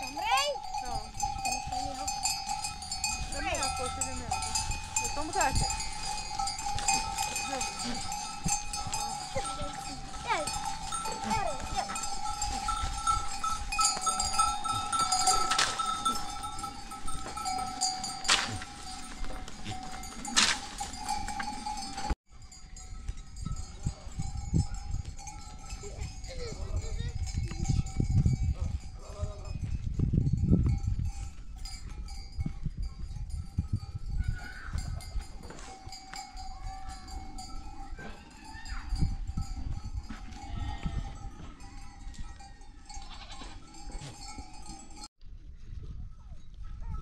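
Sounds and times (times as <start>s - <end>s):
sheep and goats bleating: 0.0s - 22.1s, 40.0s - 44.3s
animal bells ringing: 0.0s - 45.1s.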